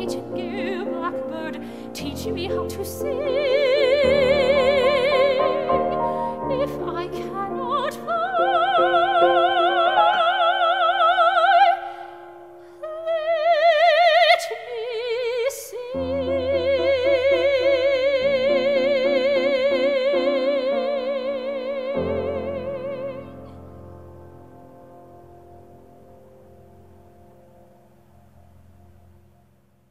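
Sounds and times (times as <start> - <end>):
grand piano accompaniment: 0.0 - 14.8, 15.8 - 29.8
soprano singing operatically: 0.0 - 23.7.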